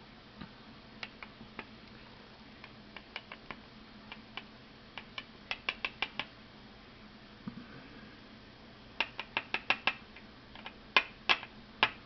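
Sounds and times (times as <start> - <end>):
metal pins clicking on tray: 3.0 - 6.3.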